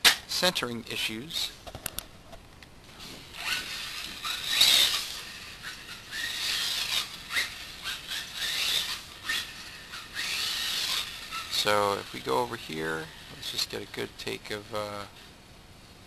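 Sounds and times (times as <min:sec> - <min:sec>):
rc car tyres hissing on concrete: 0:03.0 - 0:13.7
electric motor whine: 0:03.0 - 0:14.1.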